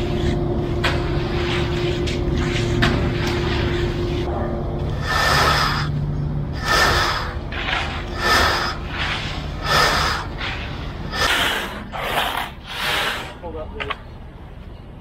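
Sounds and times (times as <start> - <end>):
low steady rumble: 0.0 - 12.7
screed board scraping concrete: 6.6 - 13.4.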